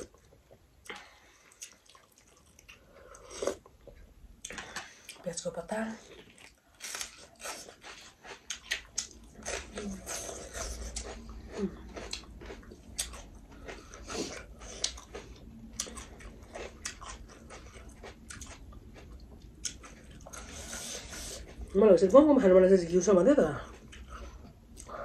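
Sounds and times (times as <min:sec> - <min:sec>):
people chewing and crunching food: 0:00.0 - 0:25.0.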